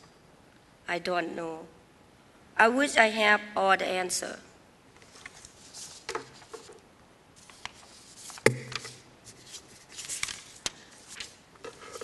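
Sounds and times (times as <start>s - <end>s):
paper rustling: 5.0s - 6.8s, 7.4s - 12.0s
sharp knock: 8.4s - 8.9s.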